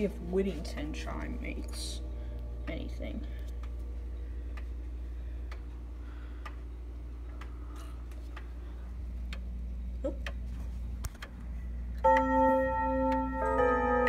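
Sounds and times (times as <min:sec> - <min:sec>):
clock ticking: 0:04.5 - 0:08.6, 0:09.2 - 0:10.5, 0:12.0 - 0:14.0.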